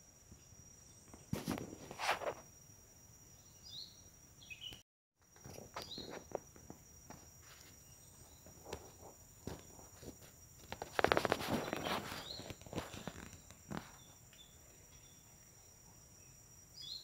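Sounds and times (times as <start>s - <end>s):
high-pitched insect chorus: 0.0s - 17.0s
insect chirps: 0.0s - 17.0s
faint clicks and rustles: 8.4s - 14.5s.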